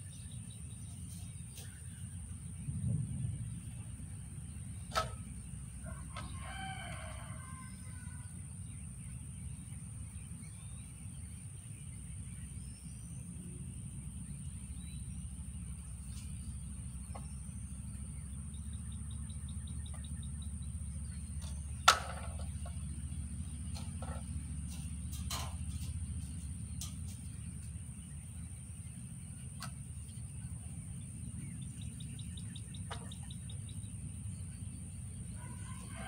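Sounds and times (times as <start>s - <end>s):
low outdoor rumble: 0.0s - 36.0s
drawn-out crow-like bird call: 4.9s - 8.7s, 19.2s - 27.1s, 35.2s - 36.0s.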